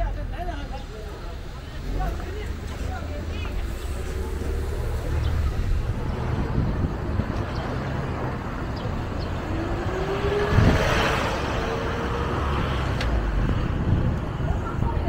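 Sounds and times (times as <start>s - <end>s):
traffic rumble: 0.0s - 15.0s
vehicle passing with rising whine: 3.6s - 13.8s.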